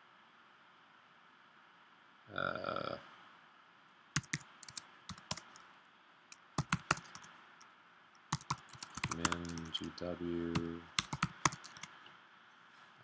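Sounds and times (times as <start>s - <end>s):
computer keyboard keys clicking: 4.2s - 5.6s, 6.3s - 7.3s, 8.3s - 11.9s.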